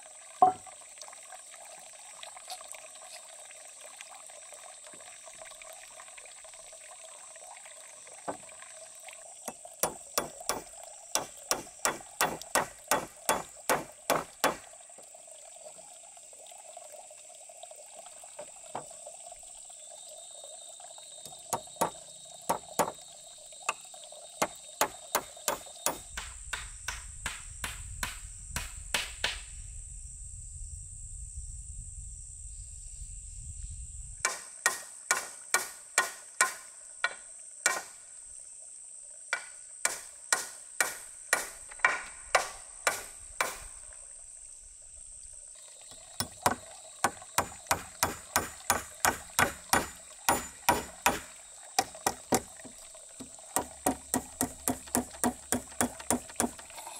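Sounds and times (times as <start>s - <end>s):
hammer driving nails into wood: 9.5s - 14.7s, 21.3s - 23.0s, 24.4s - 29.4s, 34.2s - 36.7s, 37.7s - 37.9s, 39.4s - 43.7s, 46.2s - 56.7s
high insect buzz: 19.6s - 29.2s.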